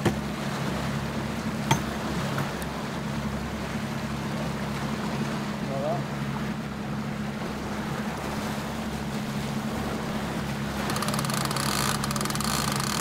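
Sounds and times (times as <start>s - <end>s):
boat wake wash: 0.0s - 13.0s
outboard motor running: 0.0s - 13.0s
fishing reel ratchet clicking: 10.9s - 13.0s.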